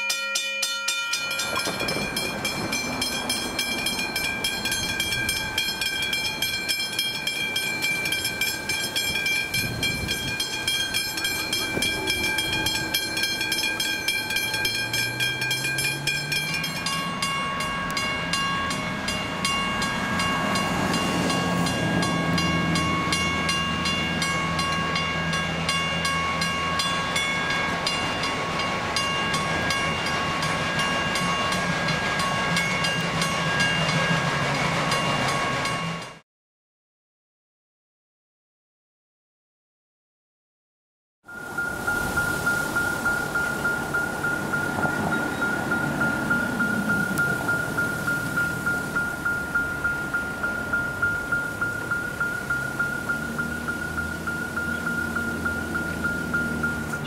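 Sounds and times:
level crossing bells ringing: 0.0s - 36.2s, 41.3s - 57.0s.

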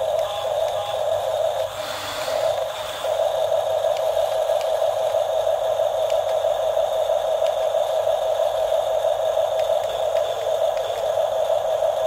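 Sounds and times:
toy bulldozer motor humming: 0.0s - 12.0s.

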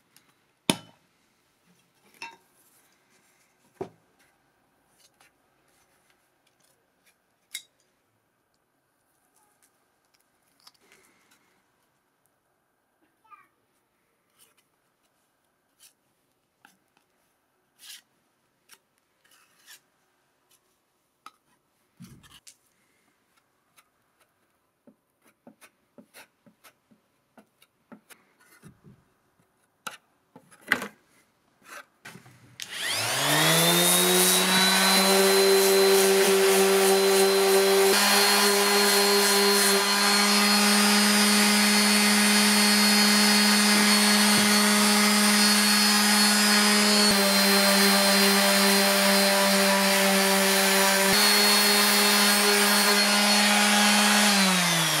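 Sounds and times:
orbital sander whine: 32.6s - 55.0s.

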